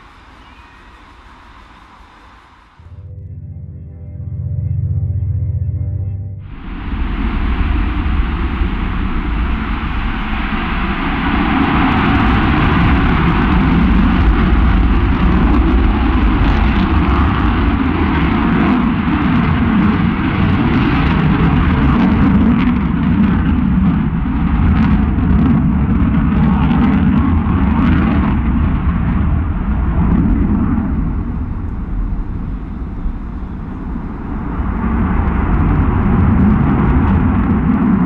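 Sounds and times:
fighter jet roaring overhead: 6.4 - 38.0.

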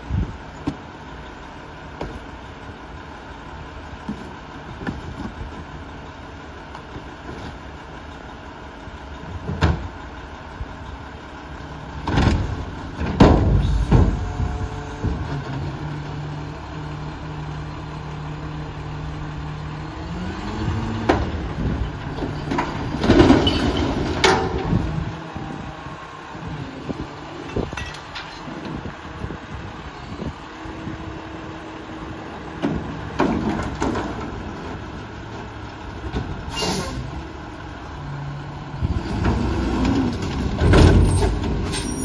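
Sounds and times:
garbage truck diesel engine: 0.0 - 42.0
hydraulic arm knocks and bangs: 12.0 - 14.3.

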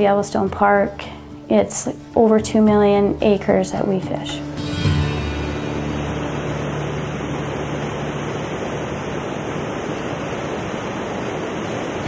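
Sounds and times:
river water rushing over rocks: 4.4 - 12.0.

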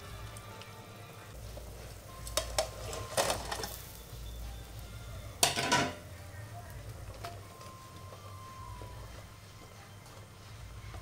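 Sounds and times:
pot and utensils clattering: 2.3 - 3.9, 5.4 - 6.0.

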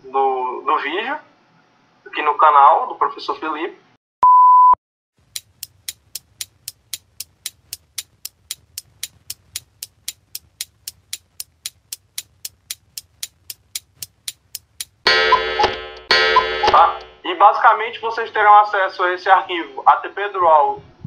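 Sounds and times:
short steady beep: 4.2 - 4.8, 15.1 - 17.3
clock ticking: 5.2 - 17.3.

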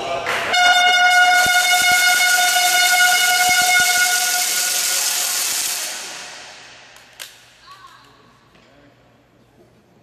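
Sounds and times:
loud horn blast with hiss: 0.5 - 6.8.

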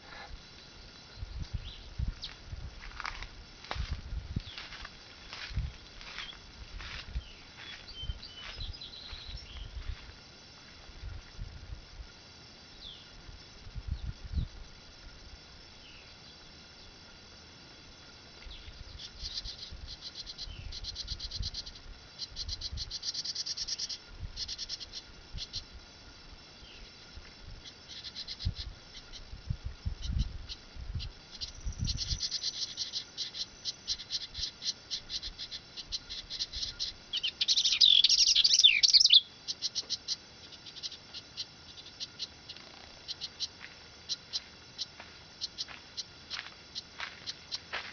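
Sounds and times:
rapid bird song: 7.2 - 9.8, 27.6 - 29.3, 30.0 - 43.5
wren chipping: 27.6 - 29.4, 30.0 - 47.7.

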